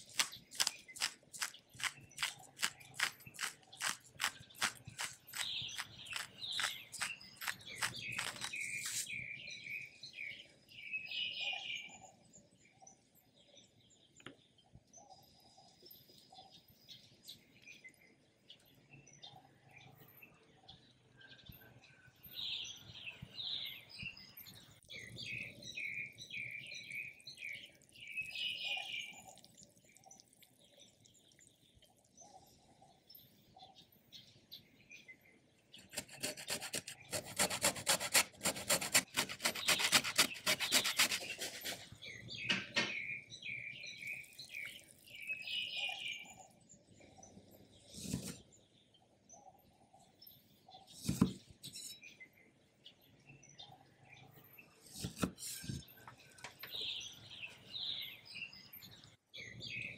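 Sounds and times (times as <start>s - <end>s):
lime rasping on grater: 0.0s - 9.1s, 35.8s - 41.9s
birds chirping: 0.0s - 12.0s, 22.3s - 59.9s.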